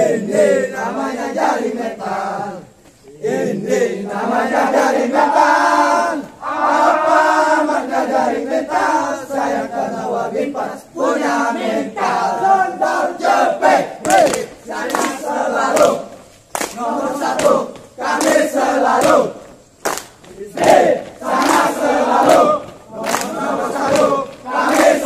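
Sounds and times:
men chanting in unison: 0.0s - 19.6s, 20.3s - 25.0s.

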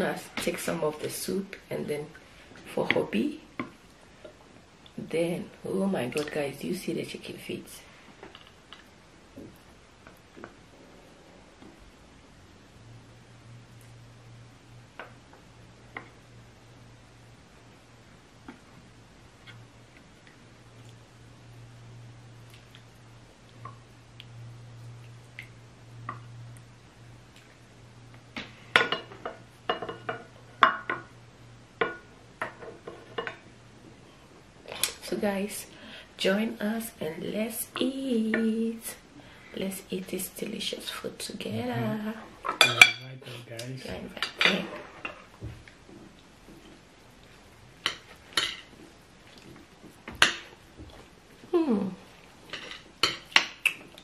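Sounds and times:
faint low hum: 0.0s - 54.0s
metal spoons clinking on plates: 42.6s - 43.1s.

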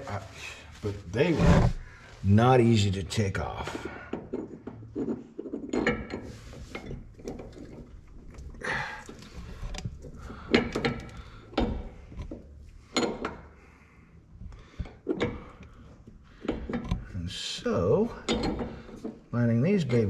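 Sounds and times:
metal hardware clinking: 18.1s - 19.1s.

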